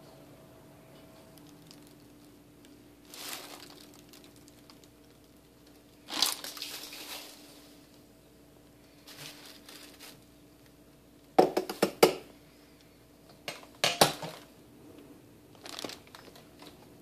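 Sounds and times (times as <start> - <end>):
faint steady hum: 0.0 - 17.0
plastic bag rustling: 1.4 - 7.9, 8.9 - 10.4, 15.5 - 16.9
kitchen items clattering: 13.5 - 14.5.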